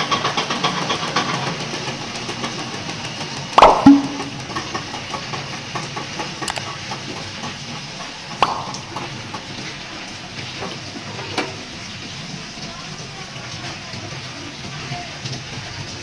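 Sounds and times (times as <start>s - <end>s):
sharp knock: 3.6s - 4.6s, 8.4s - 9.1s.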